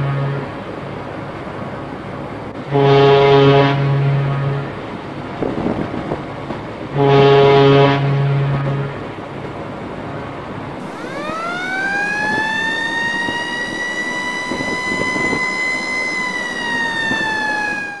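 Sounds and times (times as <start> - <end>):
steady background rush: 9.2 - 18.0
siren winding up: 10.8 - 18.0.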